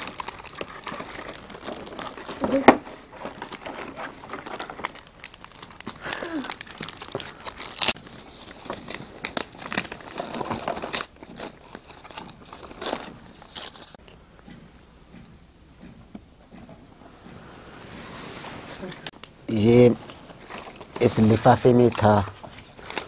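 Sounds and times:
paper envelope tearing: 0.0 - 14.0
plastic wrappers crinkling: 0.0 - 14.0, 20.0 - 23.0.

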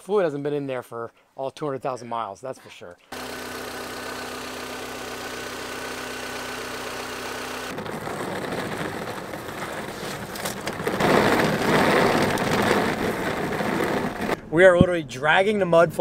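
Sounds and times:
mud flaps dragging on ground: 7.7 - 14.4
tyres crunching on gravel: 7.7 - 14.4.

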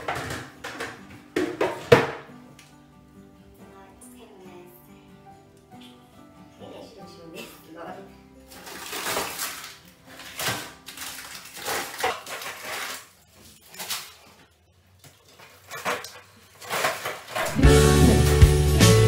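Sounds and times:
frozen packs knocking on shelves: 0.0 - 2.3, 8.5 - 13.1
music: 0.0 - 11.6, 17.3 - 19.0
plastic bags rustling: 8.5 - 17.8.

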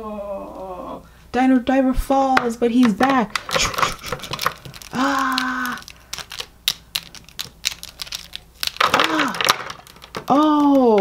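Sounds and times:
plastic figures clacking together: 2.4 - 11.0.

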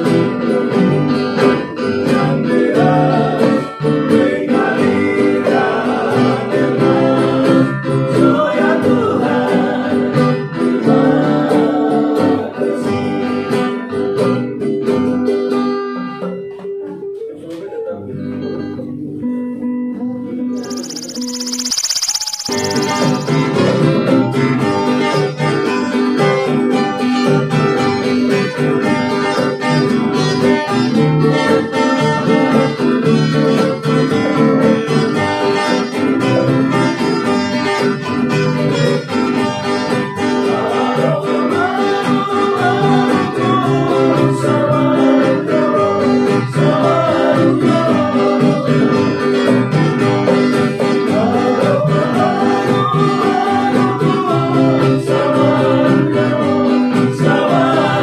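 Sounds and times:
strummed acoustic guitars: 0.0 - 58.0
voices singing: 2.3 - 12.7, 20.6 - 23.7, 40.4 - 49.2, 50.9 - 58.0.

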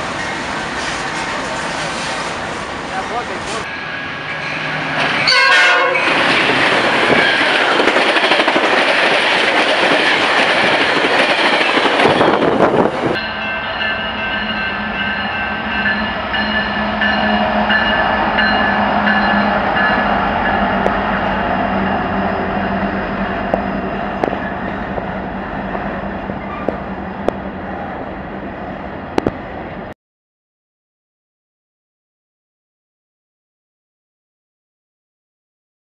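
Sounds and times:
train wheels rushing on rail: 0.0 - 29.9
train rumbling: 0.0 - 30.0
wheels clicking over rail joints: 6.1 - 12.6.

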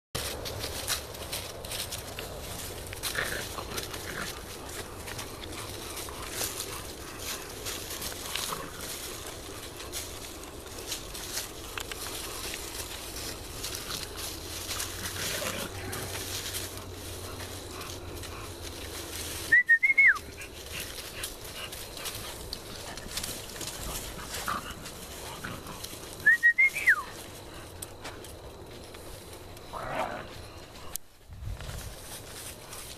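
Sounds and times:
feet rustling through dry leaves: 0.2 - 32.9
person whistling: 19.5 - 20.2, 26.2 - 27.1.

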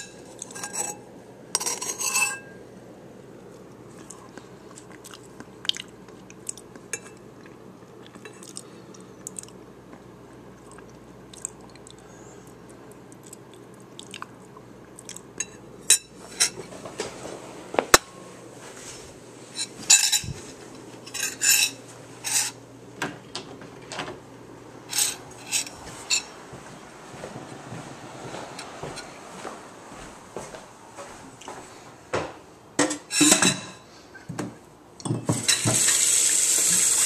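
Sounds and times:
utensil clinking and scraping dish: 0.0 - 1.0, 1.6 - 2.6, 19.6 - 20.4, 21.0 - 22.6, 24.9 - 26.3, 32.8 - 33.8.

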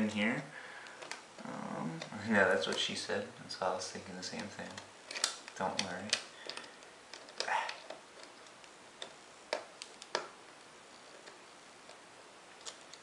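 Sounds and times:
fingers clicking on plastic frame: 4.3 - 10.4.

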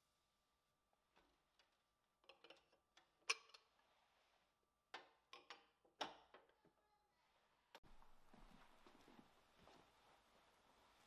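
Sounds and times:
objects clicking and knocking on shelf: 1.6 - 3.7, 4.9 - 6.6.

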